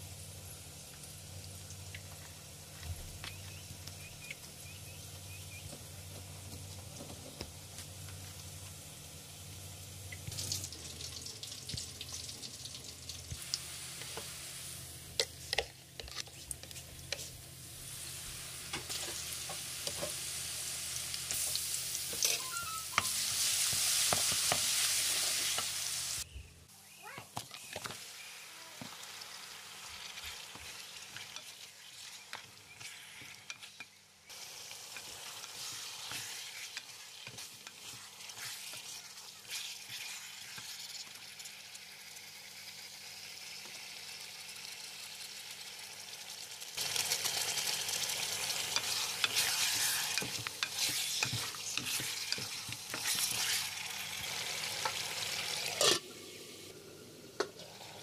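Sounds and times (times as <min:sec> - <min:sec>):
meat sizzling in hot oil: 0:00.0 - 0:26.3, 0:27.8 - 0:56.8
wooden spoon scraping pot: 0:48.8 - 0:53.7.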